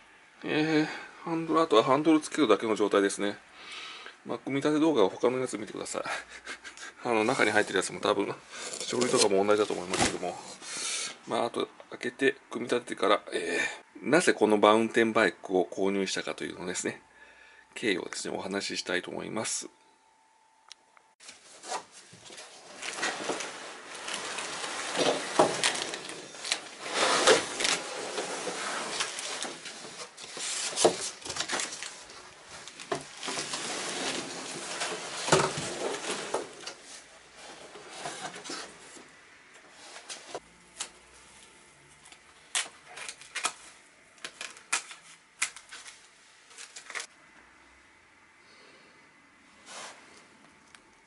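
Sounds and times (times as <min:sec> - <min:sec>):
cardboard and bubble wrap rustling: 0:07.1 - 0:10.7, 0:21.2 - 0:39.1, 0:39.7 - 0:47.1.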